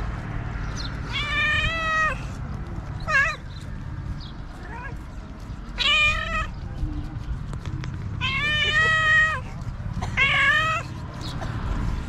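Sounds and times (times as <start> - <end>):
cat meowing: 1.1 - 2.3, 3.0 - 3.4, 5.8 - 6.6, 8.2 - 9.5, 10.2 - 10.9.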